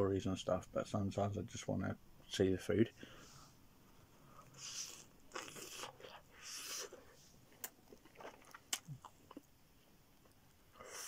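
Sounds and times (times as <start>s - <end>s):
man chewing: 4.3s - 9.5s
mouth clicks and smacks: 7.5s - 9.6s.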